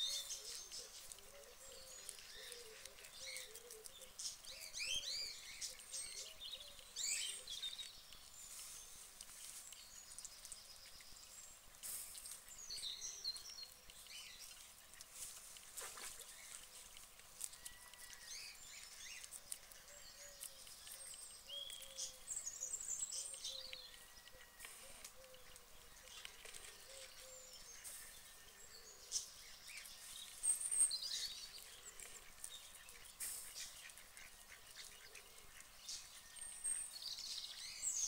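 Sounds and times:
guinea pig chewing: 0.0 - 37.9
small birds chirping: 0.0 - 38.0.

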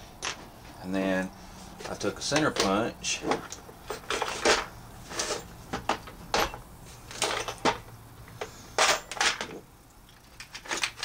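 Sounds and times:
tools and plastic box clicking: 8.4 - 11.0.

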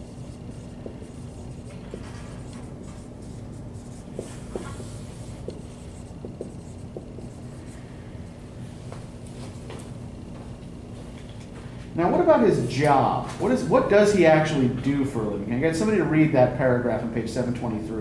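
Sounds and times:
marker squeaking on whiteboard: 0.0 - 7.7
low room hum: 0.0 - 18.0.

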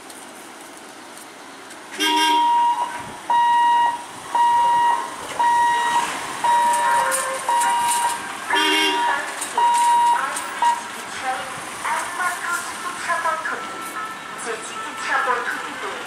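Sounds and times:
level crossing warning beeps: 2.0 - 11.0.

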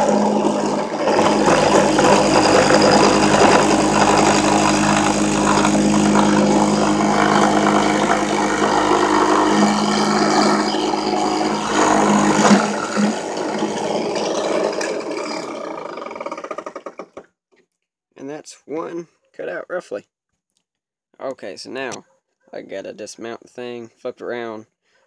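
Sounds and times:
drill press motor hum: 0.0 - 17.0
end mill cutting plastic: 0.0 - 17.3.

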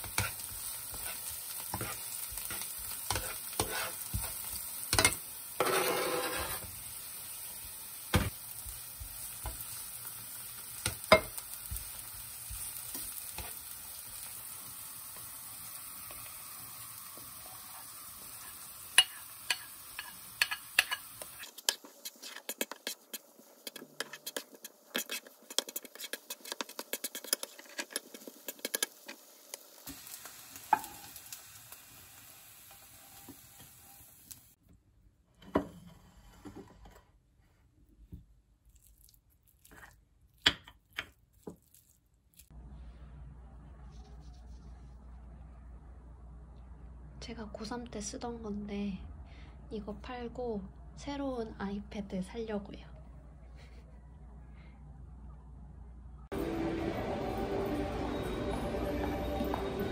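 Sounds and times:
spatula clicking and scraping pan: 0.0 - 6.7, 10.8 - 13.7, 18.3 - 29.6
vegetables sizzling in oil: 0.0 - 34.6.

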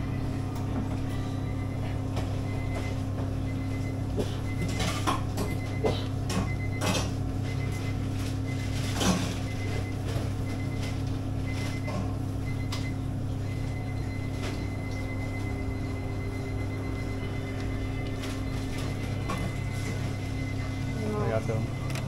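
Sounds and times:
kitchen equipment humming: 0.0 - 22.0
clicks and clatter of kitchen work: 4.6 - 7.2, 8.7 - 11.0.

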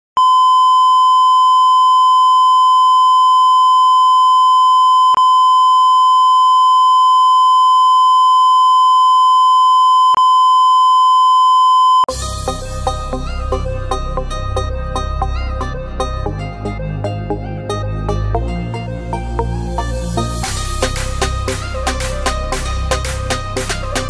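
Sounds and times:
high-pitched electronic beep tone: 0.2 - 12.2
music: 12.1 - 24.0.

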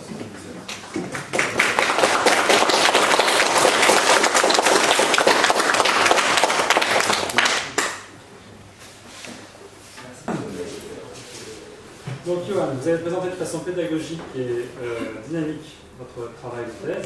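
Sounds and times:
audience applause: 1.1 - 8.0.

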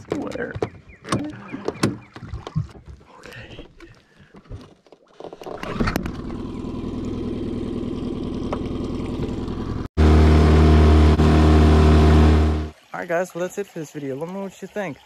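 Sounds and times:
outboard motor running: 5.2 - 12.7.

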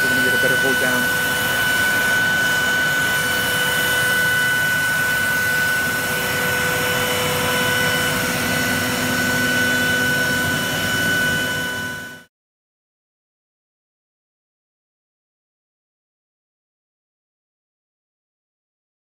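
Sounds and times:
vacuum and dust extraction rush: 0.0 - 12.2
router spindle whine: 0.0 - 12.3.

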